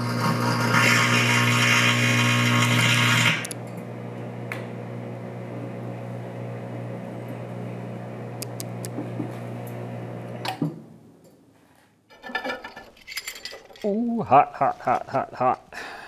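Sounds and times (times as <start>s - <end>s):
microwave oven humming: 0.0s - 10.8s.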